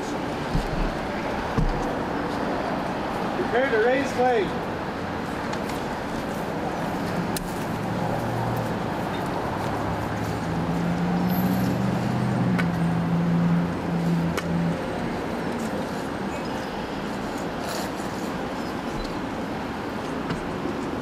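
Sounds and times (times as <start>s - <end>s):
outdoor noise: 0.0s - 21.0s
motor vehicle engine humming: 4.7s - 21.0s.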